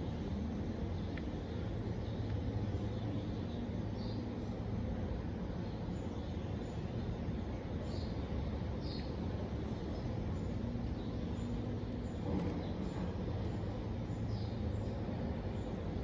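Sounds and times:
hamster nibbling lettuce: 0:14.7 - 0:16.0.

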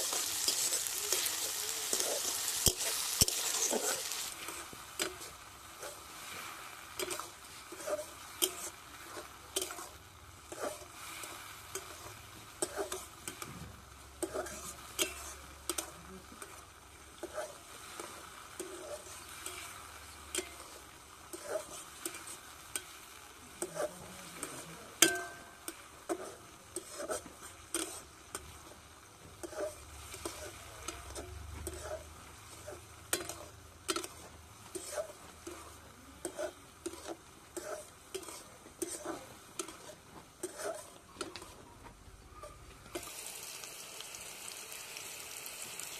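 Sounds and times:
metal spatula scraping a wok: 0:00.0 - 0:41.7
faint frying sizzle: 0:00.0 - 0:45.9.

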